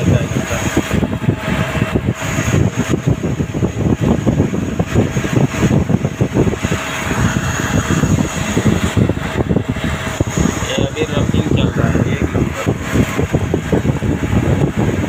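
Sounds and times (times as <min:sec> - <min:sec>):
coolant spraying and splashing: 0:00.0 - 0:15.0
faint steady whine: 0:00.0 - 0:15.0
lathe churning rattle: 0:00.0 - 0:15.0.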